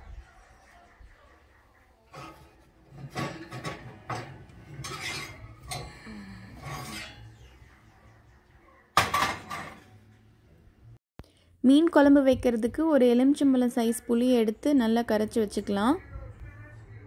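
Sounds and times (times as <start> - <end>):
cast iron pans scraping wire racks: 2.1 - 7.6, 9.0 - 10.1.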